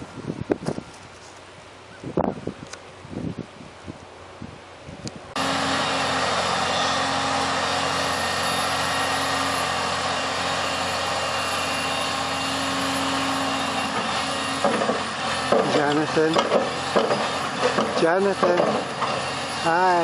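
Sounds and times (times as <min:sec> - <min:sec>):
excavator diesel engine running: 0:05.4 - 0:20.0.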